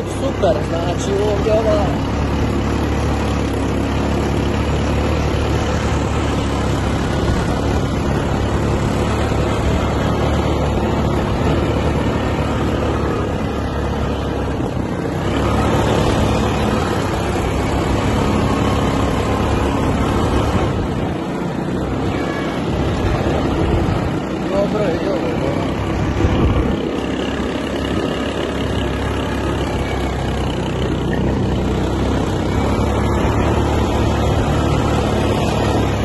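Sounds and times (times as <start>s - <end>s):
wind buffeting microphone: 25.9s - 27.0s.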